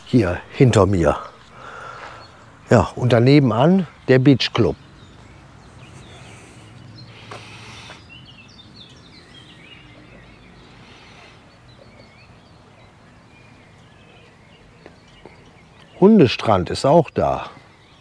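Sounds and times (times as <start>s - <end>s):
faint low background noise: 0.0s - 18.0s
small birds chirping: 0.0s - 18.0s
rustle: 4.9s - 16.1s.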